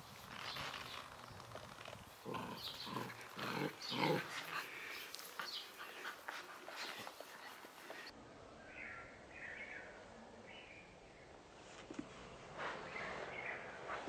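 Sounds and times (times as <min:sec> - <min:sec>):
puppy vocalising: 0:02.2 - 0:08.1.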